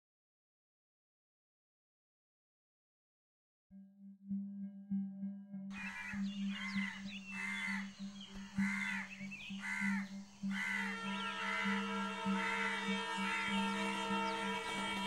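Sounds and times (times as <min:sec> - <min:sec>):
low pulsing drone: 0:03.7 - 0:15.0
sustained background score chord: 0:03.7 - 0:15.0
crow cawing: 0:05.8 - 0:15.0.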